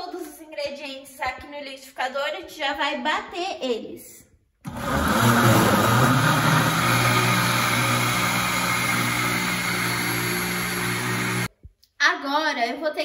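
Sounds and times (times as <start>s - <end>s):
blender running: 4.7s - 11.5s.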